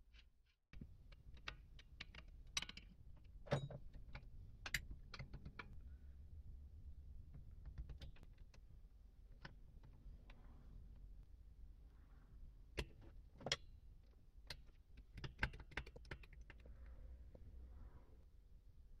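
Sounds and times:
small metallic clicks and taps: 0:00.1 - 0:05.8, 0:14.4 - 0:16.7.

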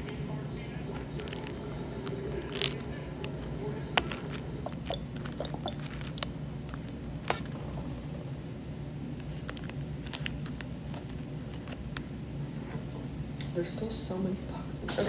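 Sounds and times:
steady low hum: 0:00.0 - 0:15.0
paper and packaging crinkling: 0:00.9 - 0:04.5, 0:05.2 - 0:07.6, 0:09.2 - 0:12.0.

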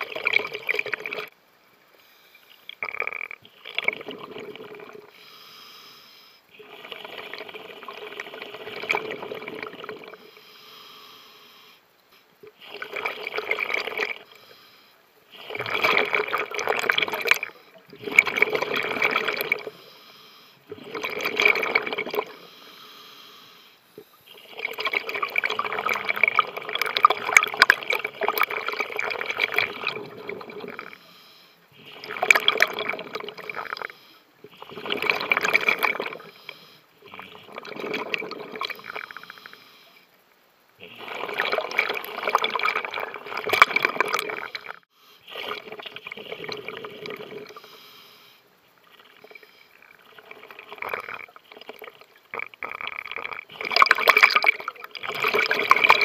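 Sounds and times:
exhaled bubbles rushing underwater: 0:00.0 - 0:01.3, 0:02.8 - 0:05.1, 0:06.7 - 0:10.2, 0:15.4 - 0:19.7, 0:20.7 - 0:22.4, 0:24.4 - 0:31.0, 0:31.8 - 0:36.3, 0:37.0 - 0:39.1, 0:40.9 - 0:47.6, 0:48.9 - 0:56.0.

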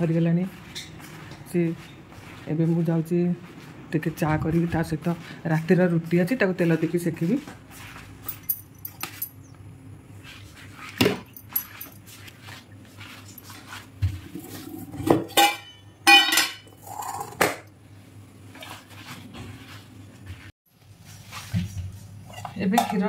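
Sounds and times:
metal pots clattering on counter: 0:14.8 - 0:17.6.

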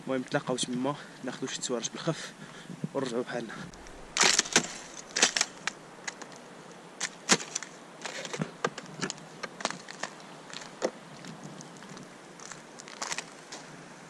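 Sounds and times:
footsteps on gravel: 0:03.0 - 0:06.4, 0:07.0 - 0:13.7
thin ice cracking underfoot: 0:03.7 - 0:06.4, 0:07.0 - 0:13.6.

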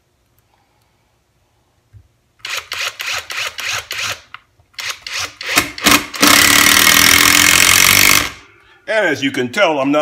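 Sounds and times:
impact driver bursts: 0:02.4 - 0:08.4.

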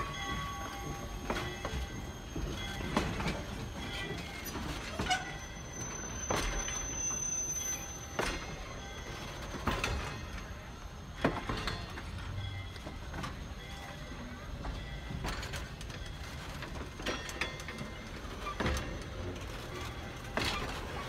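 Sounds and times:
train coaches rumbling: 0:00.0 - 0:21.0
wheels clacking over rail joints: 0:00.0 - 0:21.0
thin high squeal: 0:04.8 - 0:08.5.

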